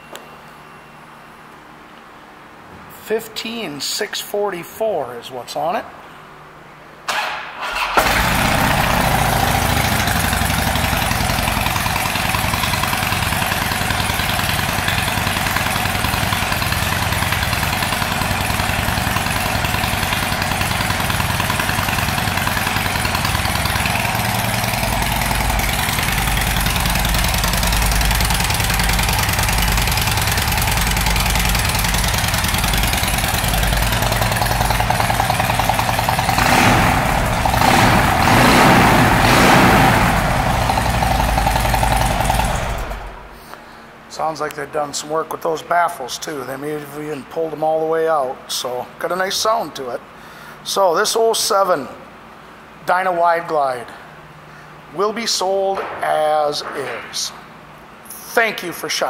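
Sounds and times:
electric starter cranking: 7.1 - 43.2
motorcycle engine idling loudly: 8.0 - 43.2.

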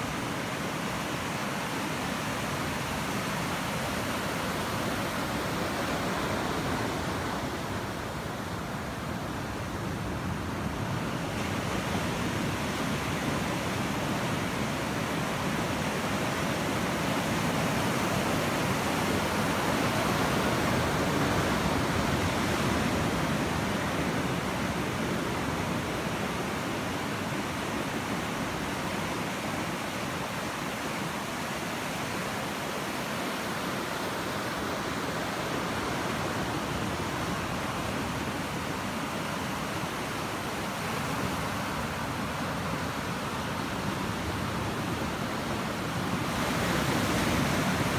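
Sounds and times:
ocean surf breaking: 31.9 - 47.9.

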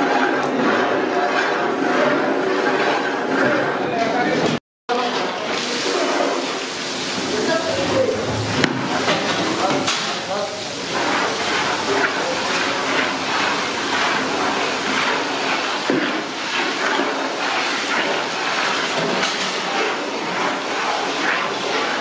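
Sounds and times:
onions sizzling in hot oil: 5.3 - 8.3.

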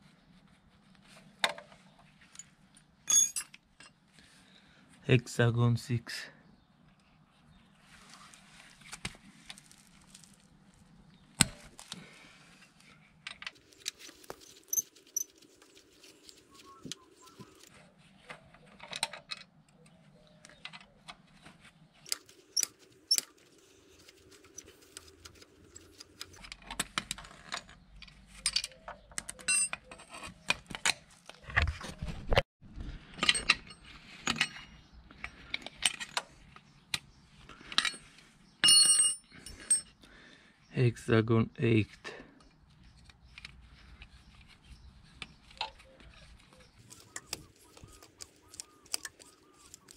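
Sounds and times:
tools being handled: 12.7 - 19.6, 20.5 - 31.4, 42.8 - 49.9.

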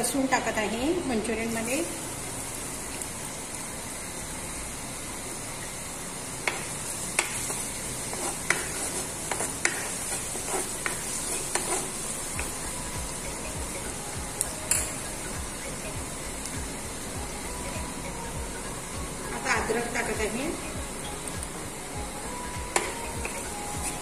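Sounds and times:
garlic sizzling in hot oil: 0.0 - 24.0
spatula scraping a pan: 8.0 - 12.2.

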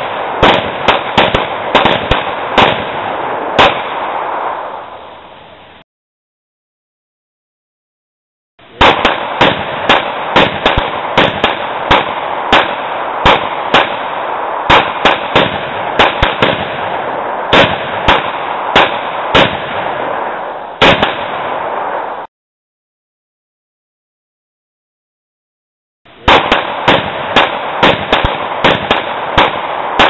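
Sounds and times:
rapid handgun fire: 0.0 - 4.7, 8.8 - 22.2, 26.2 - 30.0.

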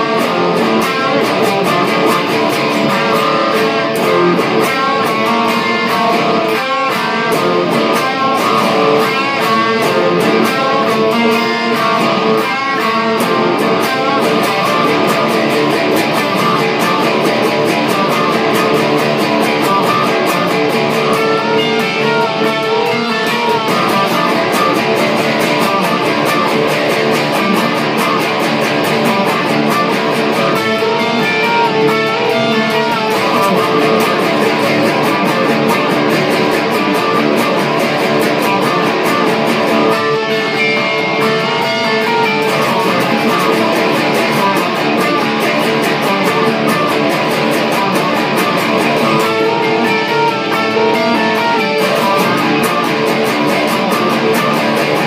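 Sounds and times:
electric guitars playing riff: 0.0 - 55.0.

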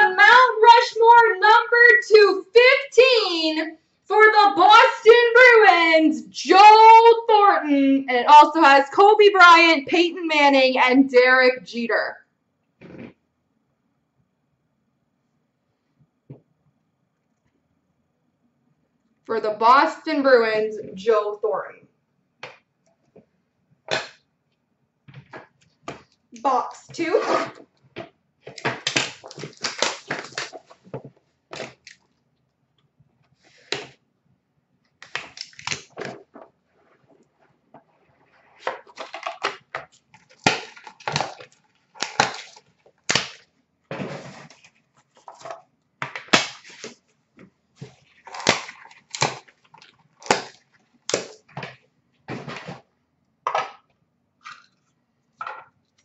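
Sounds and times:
packaging tearing and crinkling: 28.5 - 30.9, 35.0 - 36.0, 40.0 - 43.5, 46.3 - 47.0, 47.9 - 51.4.

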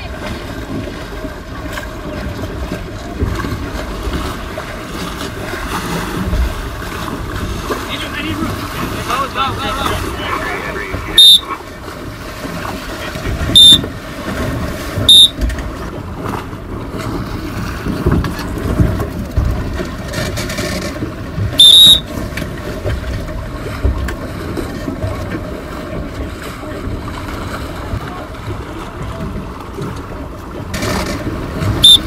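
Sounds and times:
wind rumble on microphone: 0.0 - 31.9
shrill whistle blasts: 11.2 - 11.4, 13.6 - 13.8, 15.1 - 15.4, 21.6 - 22.0.

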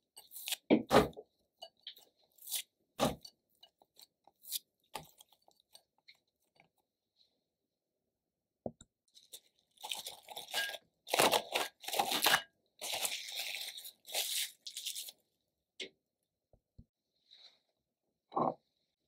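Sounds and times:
cling film crinkling and tearing: 9.3 - 15.2.

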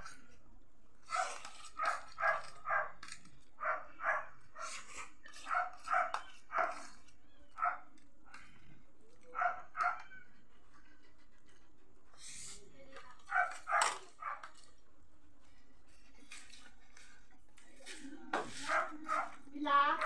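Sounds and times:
dog barking: 1.1 - 3.0, 3.6 - 6.9, 7.6 - 7.9, 9.3 - 10.1, 13.3 - 14.4, 18.6 - 19.4.

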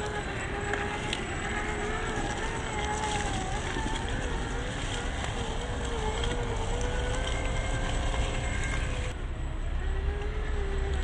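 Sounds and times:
tyres rolling on dry leaves: 0.0 - 9.2
toy truck electric motor whining: 0.0 - 11.0.

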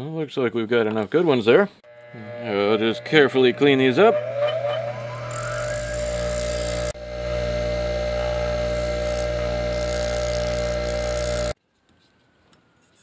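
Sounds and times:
bench grinder motor hum: 1.8 - 11.6
metal grinding hiss: 1.9 - 7.0.

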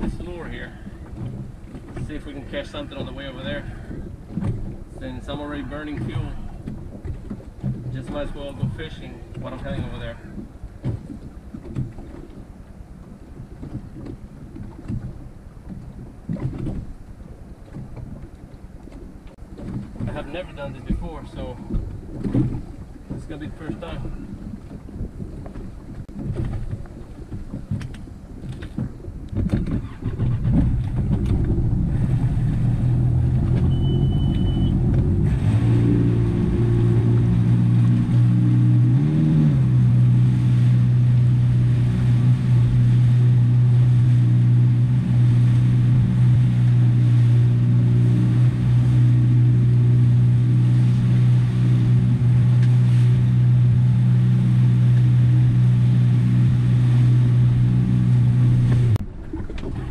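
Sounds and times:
boat engine running: 0.0 - 59.9
rushing water: 0.0 - 59.9
wind: 0.0 - 59.9.

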